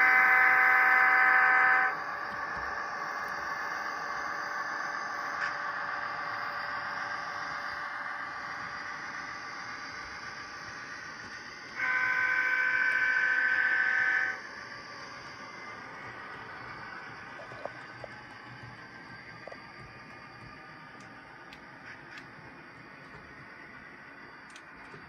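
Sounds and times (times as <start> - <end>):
model locomotive diesel engine sound: 0.0 - 25.0
multi-tone air horn: 11.8 - 14.4.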